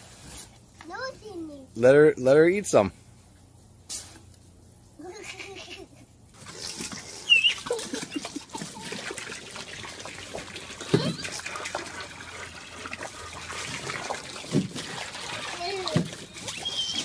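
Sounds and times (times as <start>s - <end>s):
hose water splashing into pool: 6.3s - 17.0s
child squealing: 16.5s - 17.0s.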